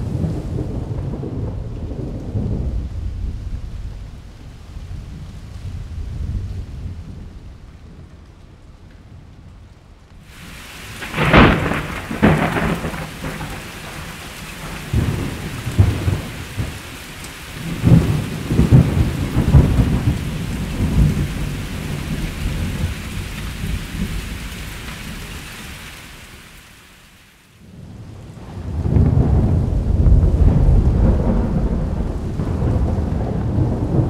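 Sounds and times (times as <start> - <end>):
thunderclaps and rolling thunder: 0.0 - 8.2, 10.3 - 25.2, 27.6 - 34.0
heavy rain hiss: 10.2 - 34.0.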